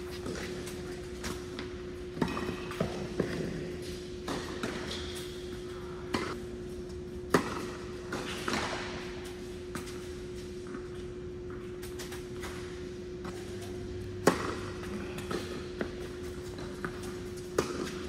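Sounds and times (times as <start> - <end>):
steady low hum: 0.0 - 18.0
tennis balls bouncing on court: 0.1 - 18.0
tennis balls struck by rackets: 1.2 - 5.4, 6.1 - 6.4, 7.1 - 10.0, 13.2 - 18.0.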